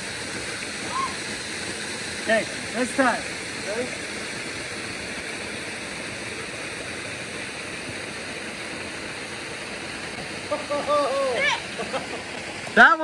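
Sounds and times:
river water pouring over a dam: 0:00.0 - 0:13.0.

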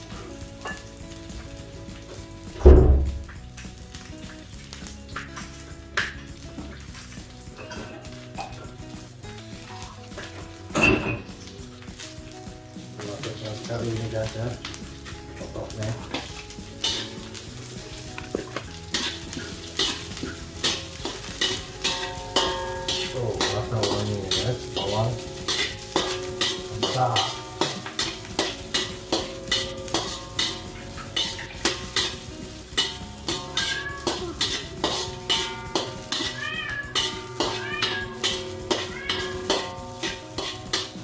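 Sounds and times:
food sizzling in oil: 0:00.0 - 0:41.0
metal spatula scraping wok: 0:09.7 - 0:41.0.

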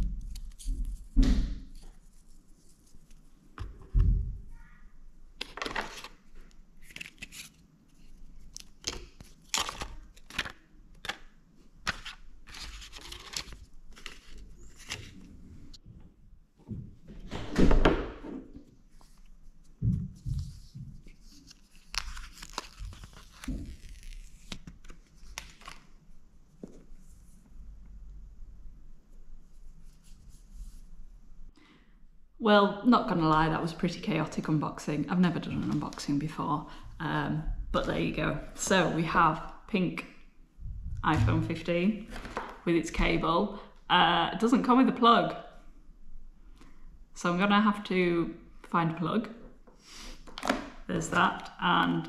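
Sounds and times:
paper packaging rustling and tearing: 0:05.4 - 0:15.3, 0:20.6 - 0:25.9
low thump: 0:40.7 - 0:41.6.

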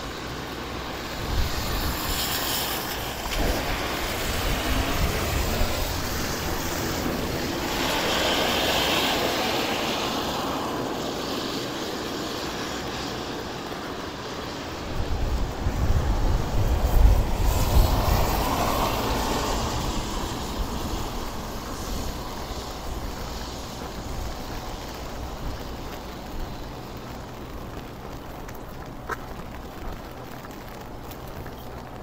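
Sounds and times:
tyre hiss on wet street: 0:00.0 - 0:32.0
vehicle engine rumble: 0:00.0 - 0:32.0.

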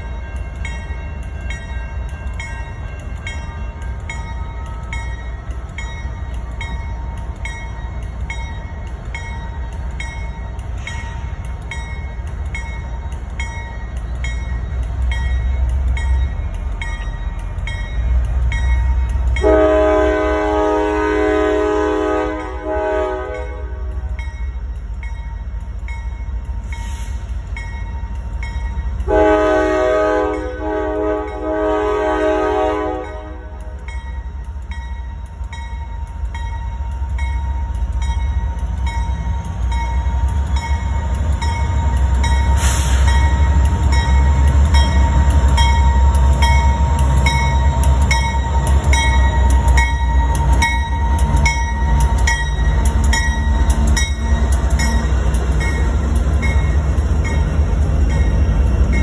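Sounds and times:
crossing bell ringing: 0:00.0 - 0:59.0
diesel locomotive engines rumbling: 0:00.0 - 0:59.0
train horn: 0:19.4 - 0:24.1, 0:29.0 - 0:33.8.

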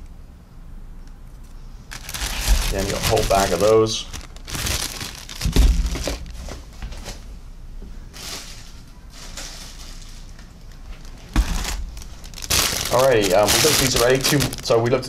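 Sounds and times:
plastic bag crinkling: 0:01.8 - 0:07.2, 0:08.1 - 0:15.0
heavy thump: 0:05.4 - 0:07.0.

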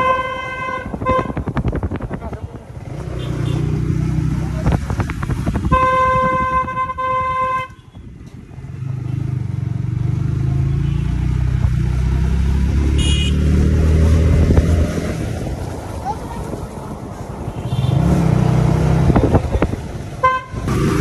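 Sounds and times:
vehicle horn: 0:00.0 - 0:01.5, 0:05.6 - 0:08.0, 0:12.9 - 0:13.5, 0:20.2 - 0:20.7
motorcycle engine accelerating: 0:01.3 - 0:07.0, 0:08.4 - 0:16.2, 0:17.8 - 0:21.0.

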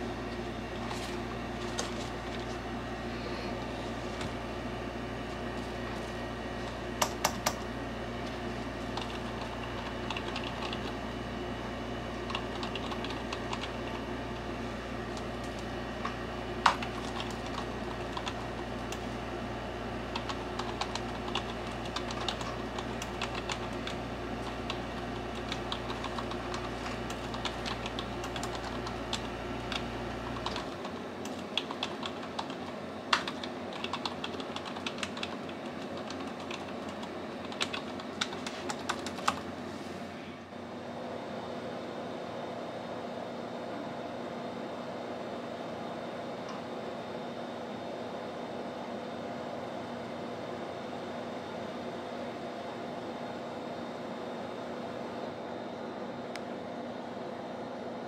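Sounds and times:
low steady hum: 0:00.0 - 0:47.6
keyboard typing: 0:07.0 - 0:11.0, 0:12.2 - 0:14.5, 0:15.1 - 0:19.1, 0:20.1 - 0:39.5.

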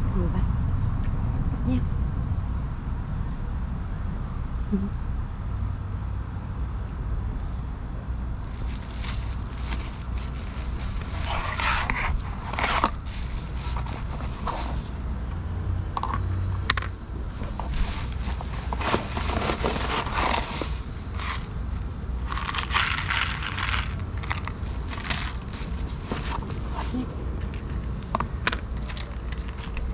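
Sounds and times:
low rumble of street noise: 0:00.0 - 0:29.9
plastic packaging scraping: 0:08.4 - 0:15.0, 0:17.3 - 0:21.5, 0:22.2 - 0:27.1
kibble rattling onto plastic plate: 0:22.3 - 0:26.9.

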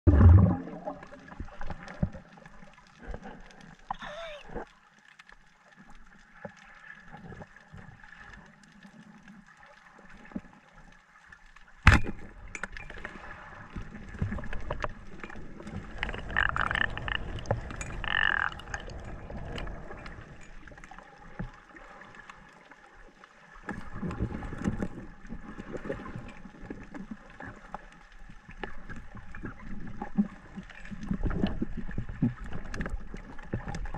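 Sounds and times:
underwater water gurgling: 0:00.0 - 0:33.9.

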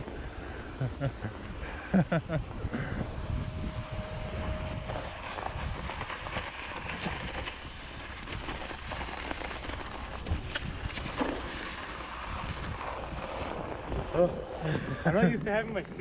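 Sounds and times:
bike tyres crunching in snow: 0:00.0 - 0:16.0
wind rumbling on microphone: 0:00.0 - 0:16.0
bike clicks: 0:04.9 - 0:14.2.

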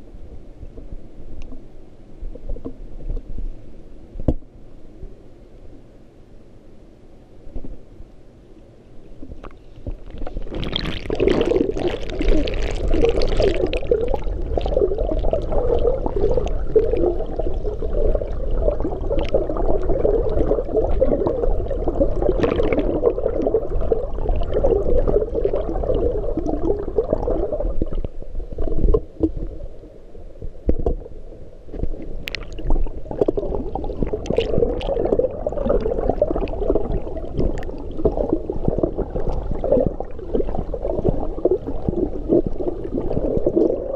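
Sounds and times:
underwater rush of water: 0:09.2 - 0:43.9.

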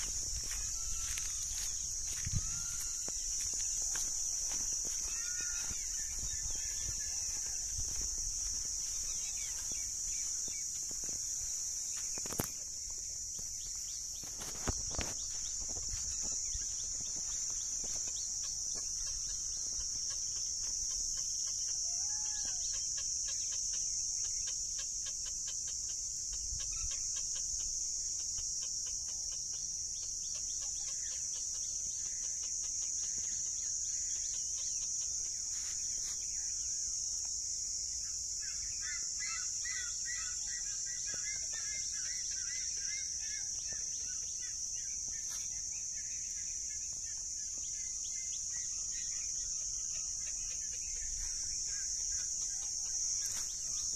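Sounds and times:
wind rumble on microphone: 0:00.0 - 0:03.5
high-pitched insect drone: 0:00.0 - 0:53.9.

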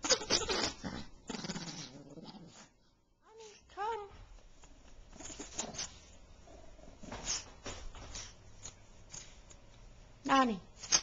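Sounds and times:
dog growling: 0:00.4 - 0:02.7.

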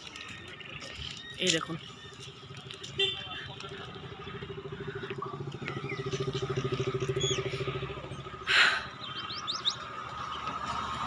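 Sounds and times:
birds chirping: 0:00.0 - 0:11.0
vehicle engine pulsing: 0:01.7 - 0:11.0.

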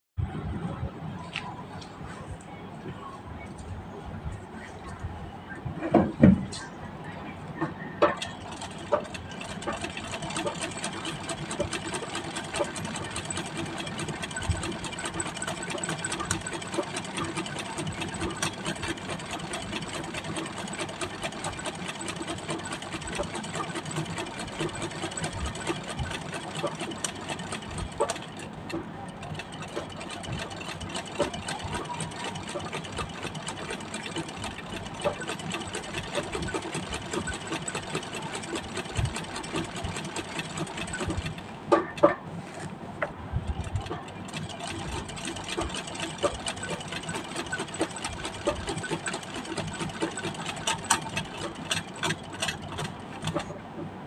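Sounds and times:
treadle sewing machine running: 0:08.1 - 0:42.1, 0:43.6 - 0:53.5.

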